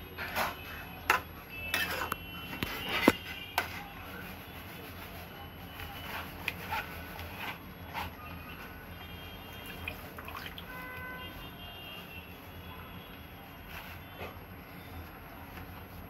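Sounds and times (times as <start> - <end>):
metal ladle scraping metal pan: 0.4 - 2.2.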